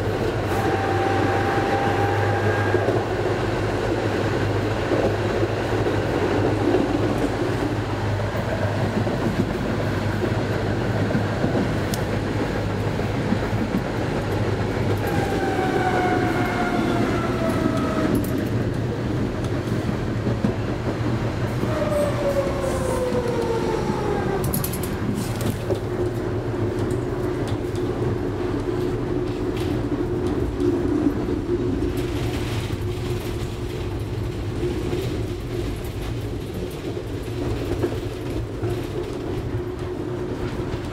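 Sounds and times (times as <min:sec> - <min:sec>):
tram wheels and motors rumbling: 0:00.0 - 0:40.9.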